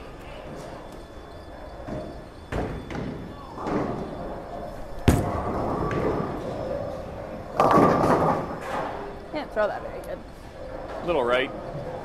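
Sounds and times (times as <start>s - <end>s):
bowling ball rolling: 0.6s - 12.0s
ball crashing into pins: 5.0s - 6.4s, 7.6s - 9.0s.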